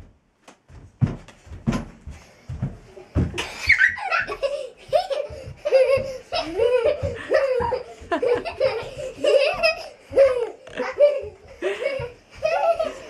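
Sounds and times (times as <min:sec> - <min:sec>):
young children laughing: 0:03.3 - 0:13.0.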